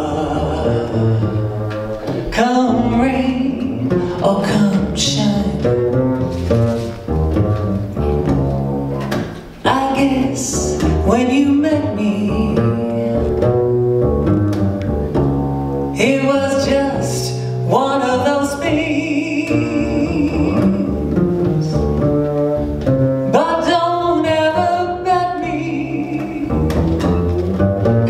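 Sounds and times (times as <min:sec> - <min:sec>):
woman singing jazz ballad: 0:00.0 - 0:06.1, 0:09.6 - 0:13.7, 0:15.9 - 0:22.2, 0:23.3 - 0:27.2
plucked double bass: 0:00.0 - 0:28.0.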